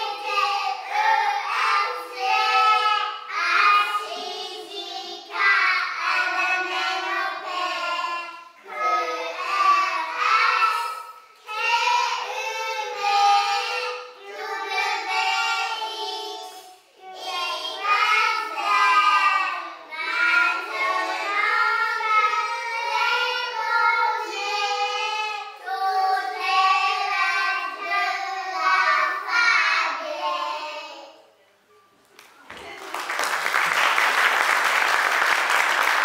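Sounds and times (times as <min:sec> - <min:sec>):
young children singing: 0:00.0 - 0:31.3.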